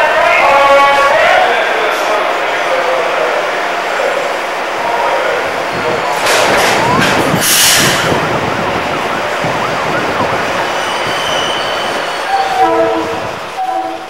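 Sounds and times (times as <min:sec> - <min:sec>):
diesel locomotive rumbling: 0:00.0 - 0:14.0
train horn blasts: 0:11.0 - 0:14.0.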